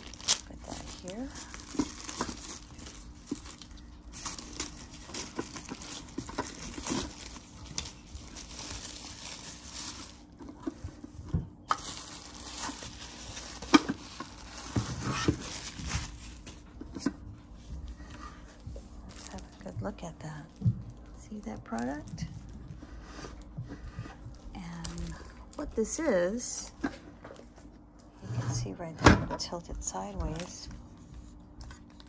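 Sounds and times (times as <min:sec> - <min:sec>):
plastic wrap rustling: 0:00.0 - 0:26.8, 0:29.9 - 0:32.0.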